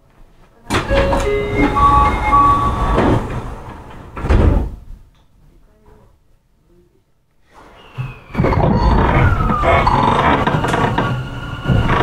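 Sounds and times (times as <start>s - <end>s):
train doors banging shut: 0.7s - 4.9s
door chime: 0.8s - 3.5s.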